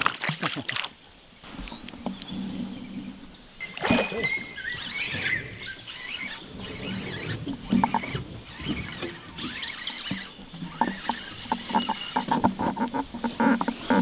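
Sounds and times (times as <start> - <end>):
bird chirps and whistles: 3.6 - 7.2.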